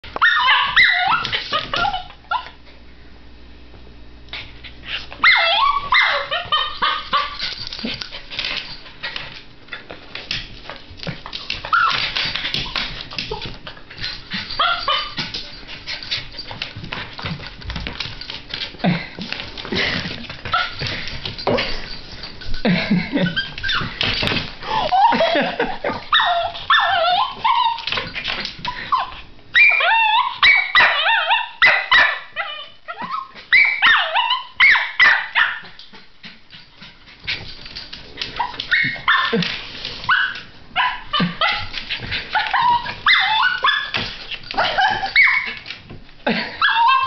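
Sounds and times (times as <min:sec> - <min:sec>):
puppy whining yipping and barking: 0:00.1 - 0:02.6, 0:05.2 - 0:07.4, 0:11.6 - 0:12.8, 0:14.5 - 0:15.2, 0:23.2 - 0:24.0, 0:26.1 - 0:35.8, 0:38.4 - 0:39.5, 0:40.1 - 0:45.6, 0:46.6 - 0:47.0.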